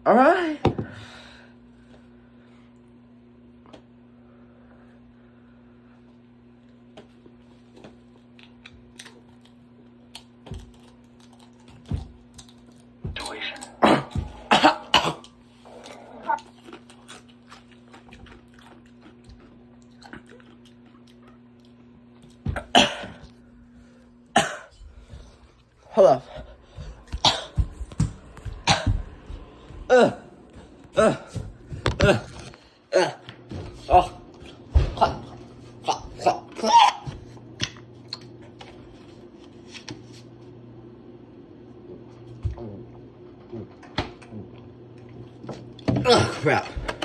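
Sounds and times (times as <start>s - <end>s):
low steady hum: 0.0s - 47.0s
person coughing: 13.8s - 15.4s, 22.5s - 23.3s, 24.3s - 24.7s, 27.1s - 27.7s, 28.6s - 29.1s, 29.9s - 30.3s, 46.0s - 46.8s.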